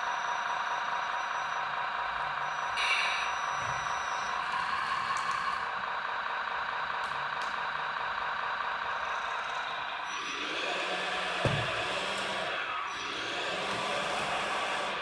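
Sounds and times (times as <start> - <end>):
hydraulic pump motor whining: 1.4 - 15.0.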